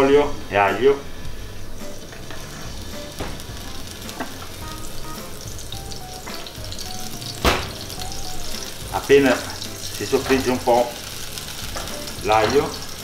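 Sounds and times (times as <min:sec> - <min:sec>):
oil and garlic sizzling: 0:00.0 - 0:13.0
sharp knock: 0:07.4 - 0:07.8.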